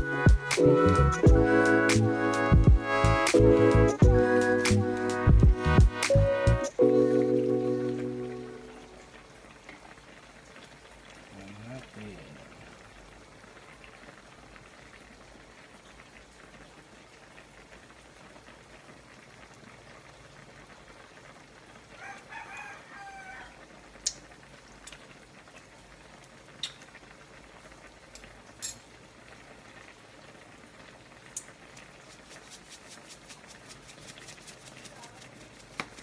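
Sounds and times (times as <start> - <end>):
sauce simmering hiss: 0.0 - 36.0
bubbling crackle: 6.9 - 36.0
rooster crowing: 21.9 - 23.7.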